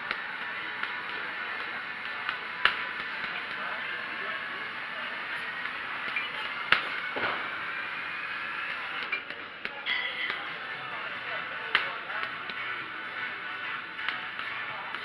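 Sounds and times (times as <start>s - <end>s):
background music: 10.4s - 15.0s.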